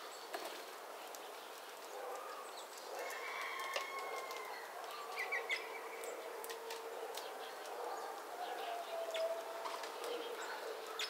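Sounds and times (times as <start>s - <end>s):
rooster crowing: 3.0s - 4.8s
small birds chirping: 4.2s - 11.0s.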